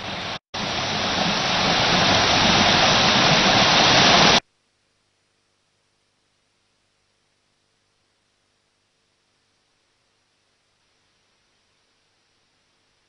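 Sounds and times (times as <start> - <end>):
waterfall rushing: 0.0 - 4.4.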